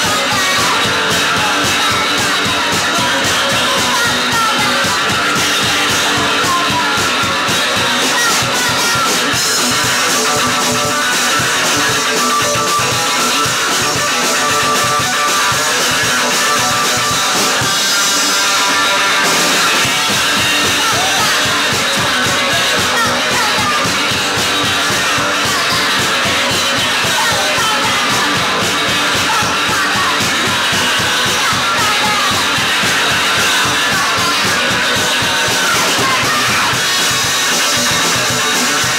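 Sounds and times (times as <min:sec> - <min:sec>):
woman singing: 0:00.0 - 0:09.4, 0:20.3 - 0:37.2
drum kit: 0:00.0 - 0:38.9
electric guitars: 0:00.0 - 0:38.9.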